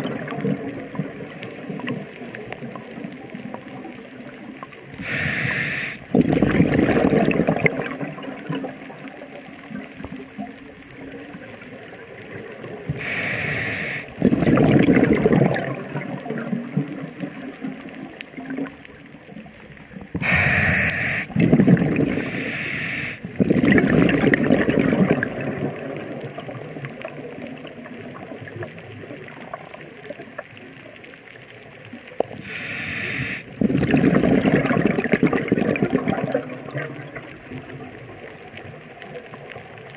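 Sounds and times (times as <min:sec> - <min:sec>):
exhaust bubbling underwater: 0:00.0 - 0:04.0, 0:05.9 - 0:10.0, 0:14.1 - 0:18.7, 0:20.0 - 0:22.5, 0:23.2 - 0:29.8, 0:33.4 - 0:39.9
regulator inhale hiss: 0:01.3 - 0:02.3, 0:05.0 - 0:06.1, 0:12.9 - 0:14.2, 0:20.2 - 0:21.4, 0:22.0 - 0:23.4, 0:32.3 - 0:33.6.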